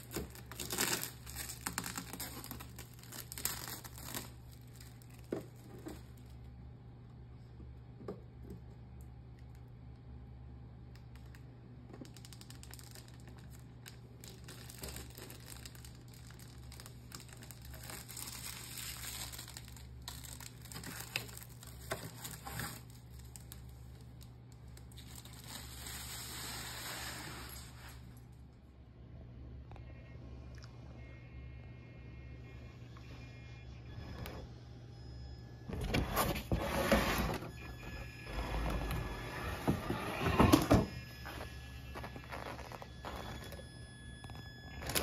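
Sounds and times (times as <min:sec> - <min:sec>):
plastic film crinkling: 0:00.0 - 0:06.6, 0:11.0 - 0:28.4, 0:41.2 - 0:43.6.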